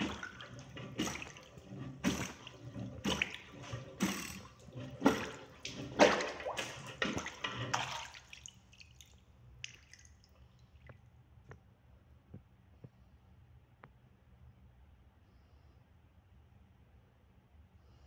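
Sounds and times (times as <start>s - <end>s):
plunger splashing and sucking water: 0.0s - 11.0s
faint water sounds: 0.0s - 11.4s.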